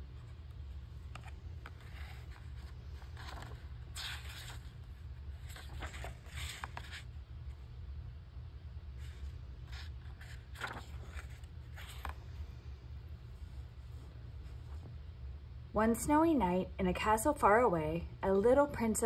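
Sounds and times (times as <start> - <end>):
book pages turning: 0.0 - 7.2, 9.0 - 12.3.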